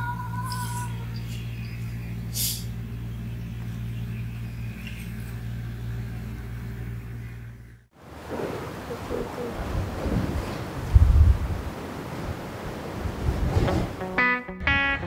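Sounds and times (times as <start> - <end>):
low mechanical hum: 0.0 - 14.0
two-note tone: 14.0 - 15.0.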